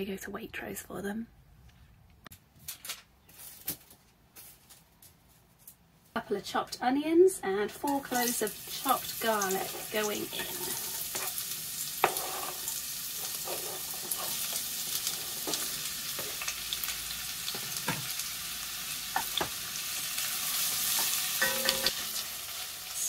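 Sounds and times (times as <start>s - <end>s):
onions and garlic sizzling: 7.6s - 23.0s
wooden spoon scraping pot: 8.8s - 11.4s, 12.0s - 16.5s.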